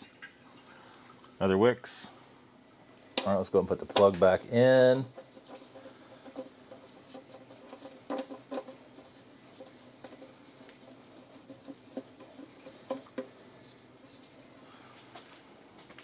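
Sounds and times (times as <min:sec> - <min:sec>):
faint scratching: 0:04.3 - 0:14.8.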